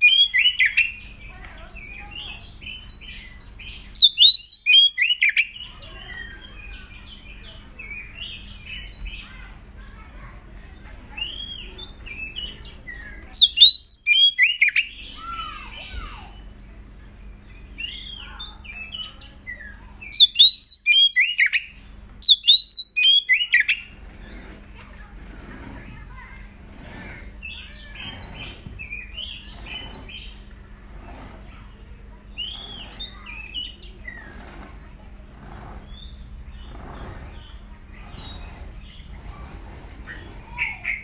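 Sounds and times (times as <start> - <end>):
bird whistling rapid phrases: 0.0 - 1.0, 3.9 - 5.5, 13.3 - 15.6, 20.1 - 23.9.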